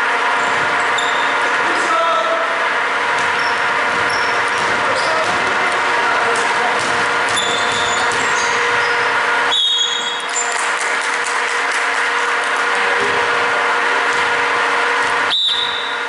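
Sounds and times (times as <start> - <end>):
sneaker squeaks on hardwood floor: 0.4 - 1.4, 3.2 - 5.4, 7.3 - 10.4.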